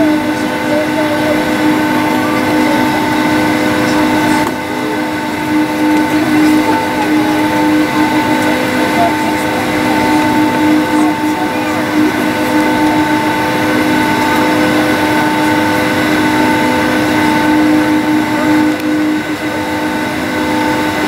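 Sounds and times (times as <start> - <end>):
jet engines running: 0.0 - 21.0.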